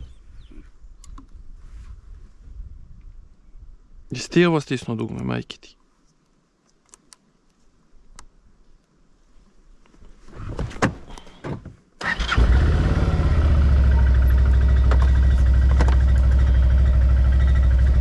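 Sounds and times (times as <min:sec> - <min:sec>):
atv engine starting and idling: 0:12.0 - 0:18.0.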